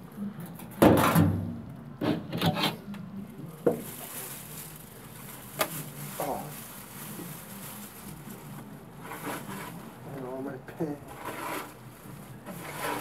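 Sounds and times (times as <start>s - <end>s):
knocks and scrapes on grill: 0.8s - 2.8s, 9.0s - 9.8s, 11.1s - 13.0s
loud rubbing handling noise: 9.0s - 10.0s, 11.0s - 13.0s.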